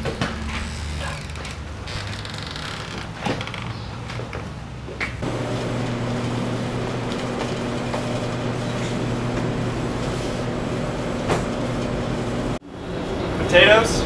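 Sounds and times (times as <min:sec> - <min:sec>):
mechanical hum and hiss: 0:05.2 - 0:14.0.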